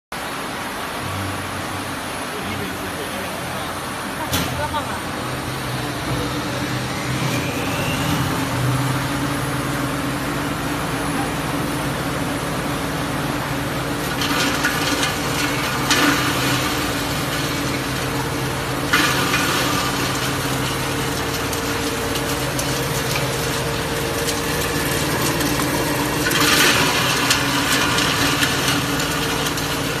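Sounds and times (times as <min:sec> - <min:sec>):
grinding machine motor hum: 0:00.2 - 0:30.0
coconut grinding noise: 0:05.2 - 0:12.2, 0:13.0 - 0:30.0.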